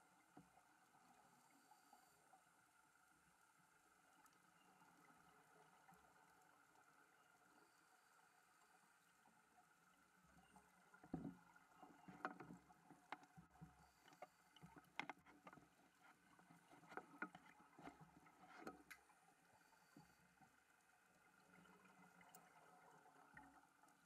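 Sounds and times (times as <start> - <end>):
faint steady hum: 0.0 - 24.0
underwater clicks and knocks: 10.9 - 19.2.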